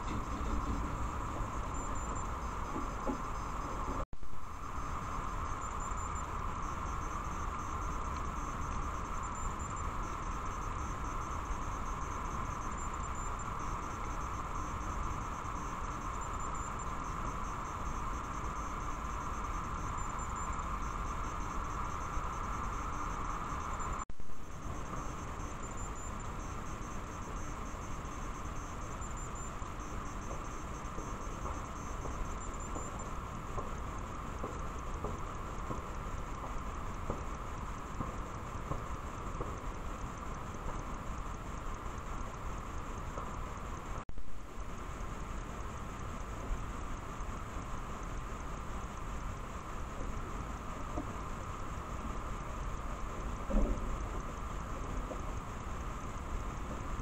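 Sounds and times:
electronic hiss and whine: 0.0s - 57.0s.

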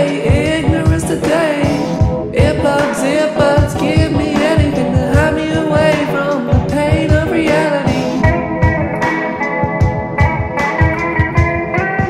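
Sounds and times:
person singing: 0.0s - 9.0s
steady drum beat: 0.0s - 12.0s.

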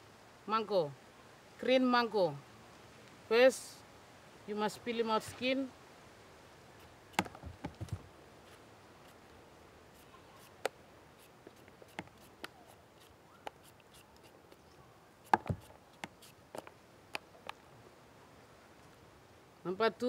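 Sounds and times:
peeler scraping mango skin: 8.4s - 9.2s, 9.9s - 14.6s, 15.2s - 16.7s.

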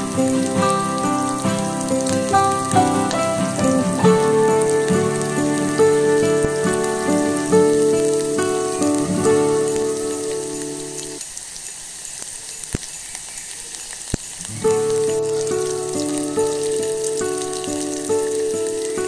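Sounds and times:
background music with sustained notes: 0.0s - 11.2s
chips sizzling in hot oil: 0.0s - 19.0s.

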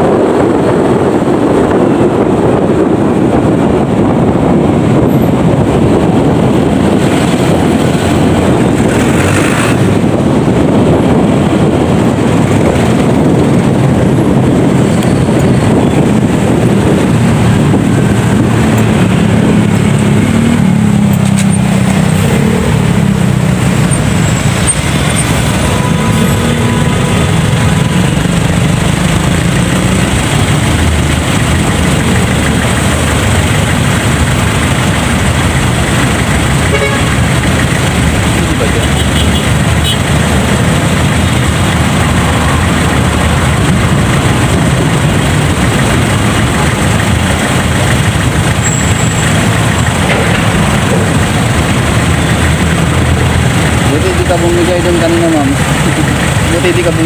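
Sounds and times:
road noise: 0.0s - 57.0s
wind noise on microphone: 0.0s - 57.0s
motorcycle engine running: 1.7s - 57.0s
vehicle horn toot: 36.7s - 37.2s, 38.9s - 40.0s.

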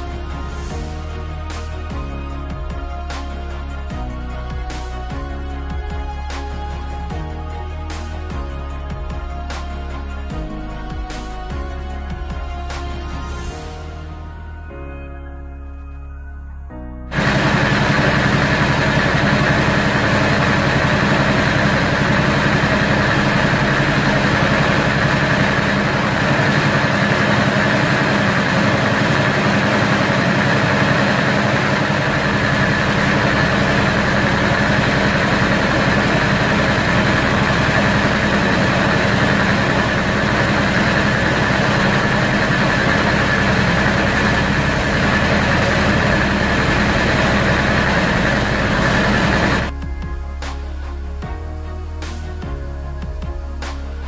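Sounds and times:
air compressor motor hum: 17.1s - 49.7s.

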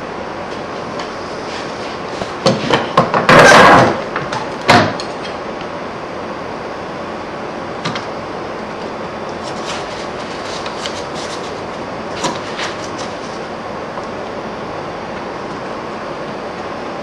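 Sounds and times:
wood scraping on wood: 9.4s - 13.4s.

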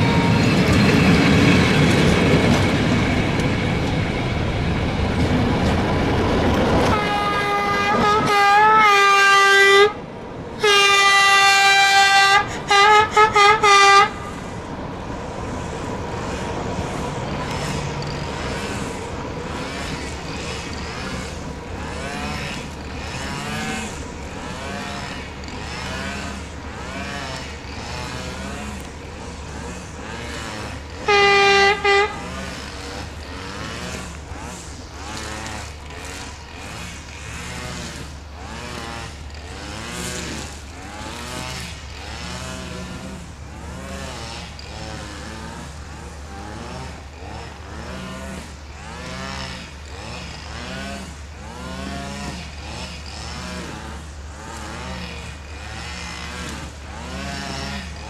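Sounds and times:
locomotive horn blasts: 0.0s - 0.7s, 6.8s - 10.0s, 10.6s - 14.4s, 30.9s - 32.6s.

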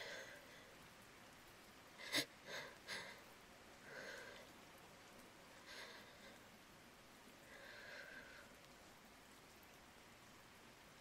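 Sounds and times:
woman breathing softly: 0.0s - 0.8s, 2.0s - 4.6s, 5.5s - 6.6s, 7.4s - 8.8s
faint steady hiss: 0.0s - 11.0s.

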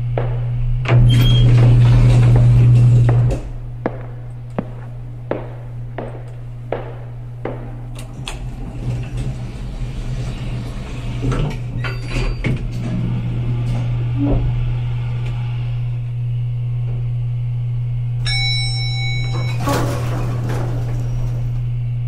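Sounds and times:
steady low hum: 0.0s - 22.0s
short ringing tone: 18.2s - 19.9s.

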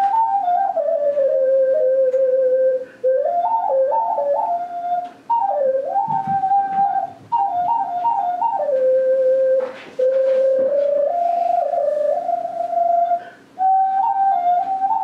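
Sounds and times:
ocarina melody: 0.0s - 15.0s
quick breaths: 13.2s - 13.6s.

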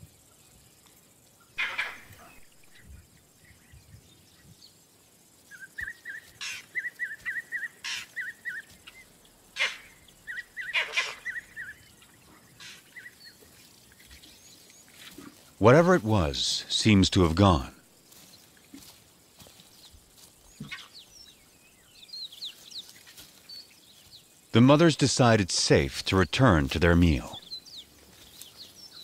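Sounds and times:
monkey barking: 1.6s - 2.4s, 9.6s - 11.8s.

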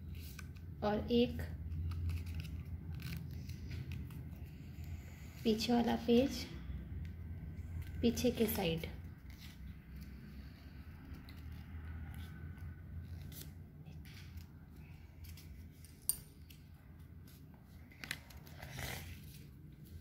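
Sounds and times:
low steady hum: 0.0s - 20.0s
paper crinkling being folded: 1.6s - 4.6s.

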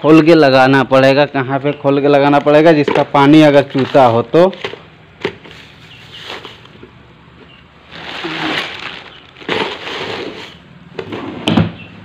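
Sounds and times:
small items being handled: 2.3s - 10.7s
plastic bags rustling: 2.4s - 7.0s, 7.7s - 10.8s.

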